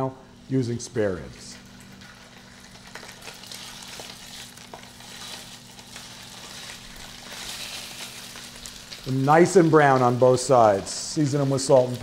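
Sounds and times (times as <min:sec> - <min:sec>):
small crackles: 0:01.5 - 0:10.3
meat sizzling in a pan: 0:01.9 - 0:12.0.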